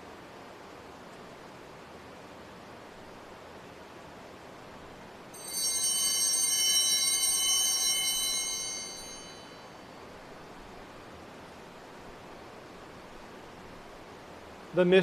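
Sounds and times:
altar bell ringing: 5.4 - 10.0.

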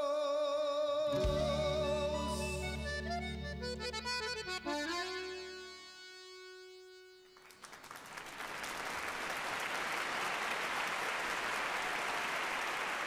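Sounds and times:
accordion note: 1.1 - 7.8
audience applause: 7.4 - 13.0.

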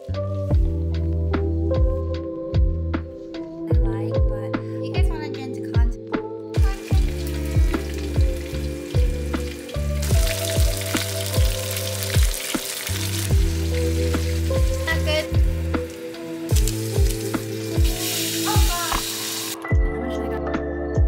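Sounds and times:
background music with steady beat: 0.0 - 21.0
food deep-frying in oil: 6.6 - 19.6.

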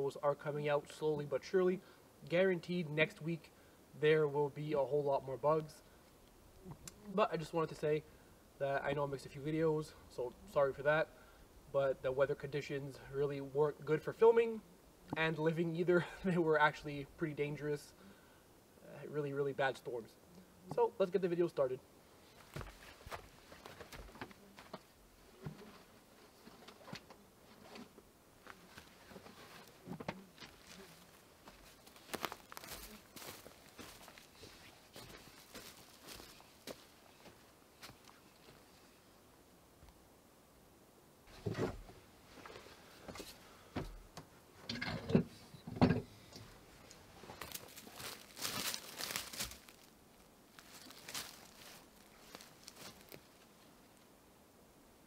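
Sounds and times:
footsteps through dry brush: 22.2 - 38.9, 46.8 - 53.8
footsteps on wooden boards: 22.4 - 27.0, 41.3 - 44.0.

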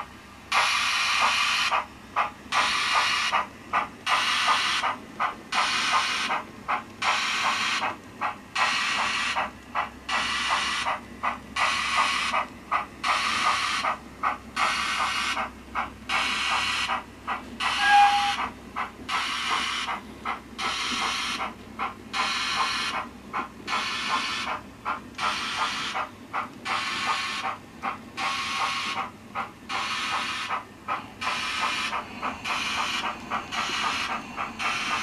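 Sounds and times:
steam locomotive exhaust chuffs: 0.0 - 35.0
brief higher tone: 17.8 - 18.4.

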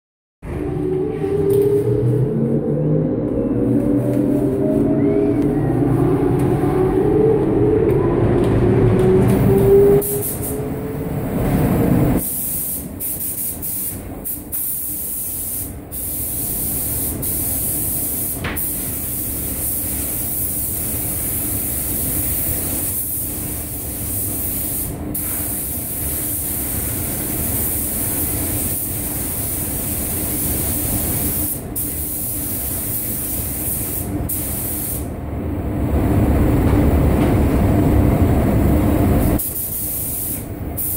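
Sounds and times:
rising hum: 0.4 - 12.2, 35.2 - 39.4
paint spray gun hissing: 12.2 - 35.0, 39.4 - 40.9.

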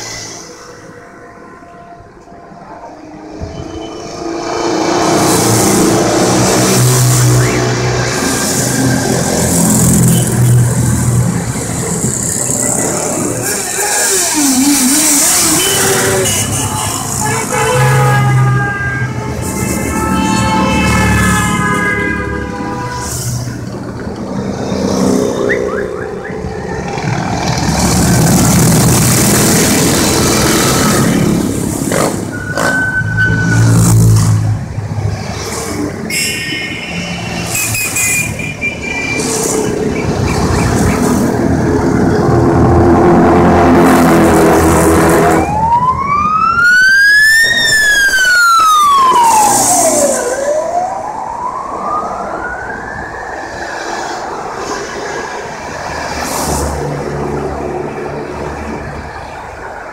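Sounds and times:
motorcycles passing and revving: 3.1 - 59.9
siren wailing: 44.4 - 54.7.

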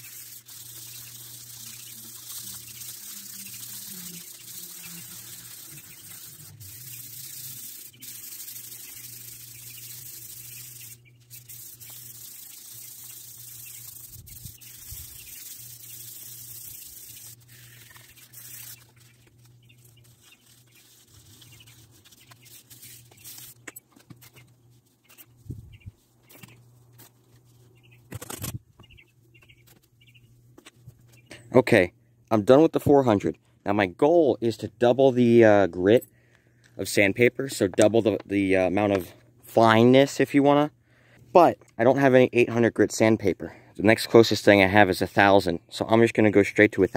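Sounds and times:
sandpaper scratching on metal: 0.0 - 23.6.

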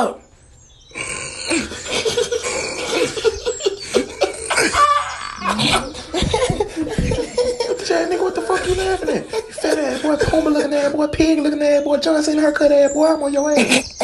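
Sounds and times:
boys laughing: 1.5 - 11.4, 13.4 - 14.0.

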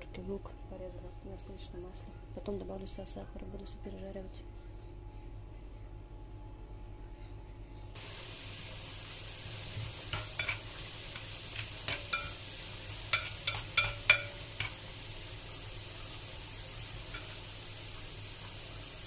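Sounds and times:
vegetables sizzling in a frying pan: 8.0 - 19.0
utensil scraping a pan: 10.1 - 12.4, 13.1 - 14.8.

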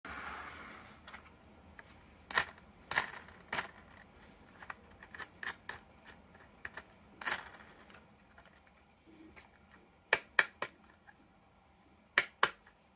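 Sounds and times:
plastic toy truck clacking: 2.3 - 8.7.

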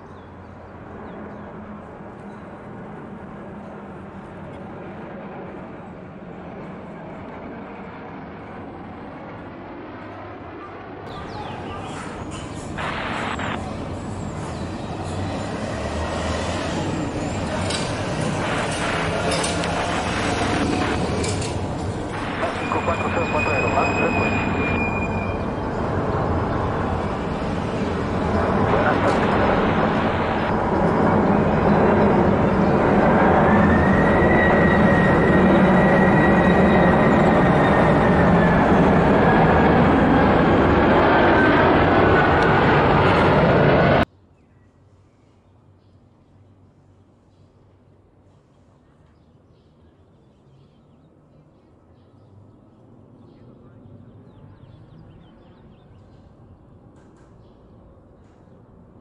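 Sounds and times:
jet engines roaring: 0.3 - 44.1
high fan whine: 11.1 - 44.1.

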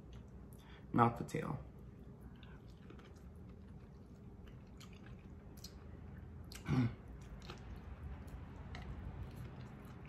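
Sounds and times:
wet chewing and biting: 2.0 - 10.0.

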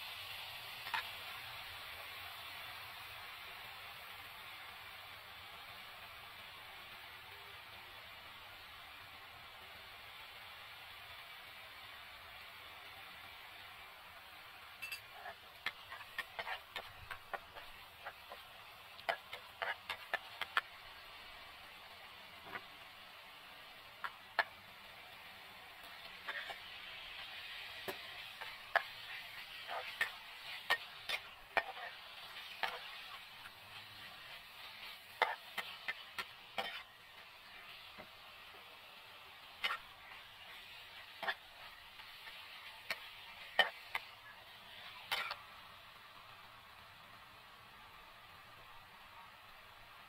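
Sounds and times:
food sizzling: 0.0 - 50.0
metal spatula scraping a frying pan: 14.8 - 20.7, 26.0 - 27.3, 27.9 - 37.7, 39.6 - 44.1, 44.8 - 45.4.

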